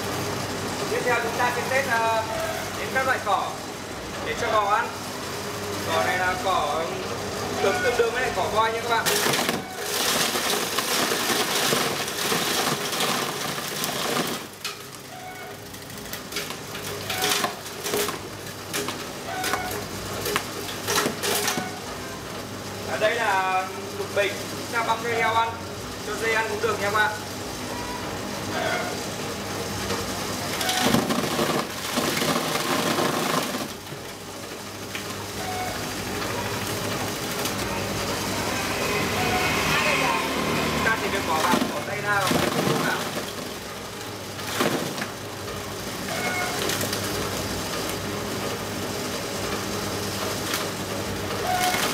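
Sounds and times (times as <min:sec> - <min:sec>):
forage chopper motor hum: 0:00.0 - 0:51.9
blades crunching and shredding plants: 0:08.8 - 0:14.6, 0:30.5 - 0:34.0, 0:36.6 - 0:45.4
motor hum: 0:27.4 - 0:51.9
chopper shredding grass: 0:35.8 - 0:45.4.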